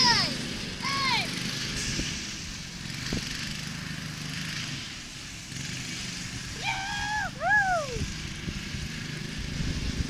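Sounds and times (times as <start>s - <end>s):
high-pitched voice calling out: 0.0s - 1.4s.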